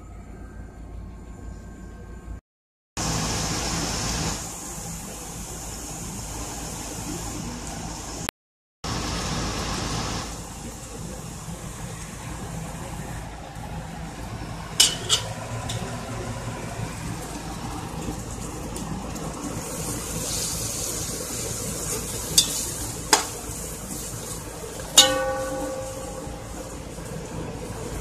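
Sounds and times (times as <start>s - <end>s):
paste sizzling in hot oil: 19.5s - 25.1s.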